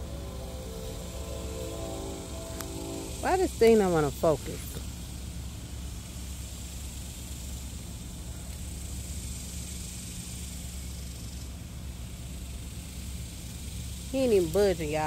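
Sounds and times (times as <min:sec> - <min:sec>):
high hiss: 0:00.0 - 0:04.8
low hum: 0:00.0 - 0:05.2.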